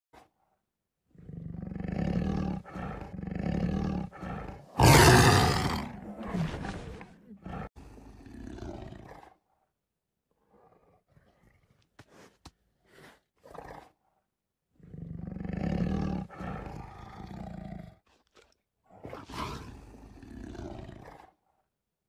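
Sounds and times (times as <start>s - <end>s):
tiger roaring: 1.1s - 9.4s, 14.8s - 17.9s, 19.0s - 21.4s
tiger growling: 1.1s - 9.6s, 14.8s - 18.0s, 19.0s - 21.6s.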